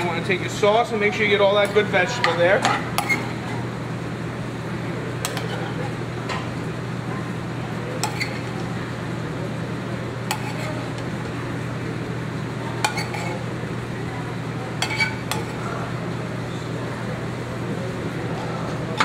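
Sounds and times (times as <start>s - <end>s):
metal spoon clinking on a pan: 14.8s - 15.6s.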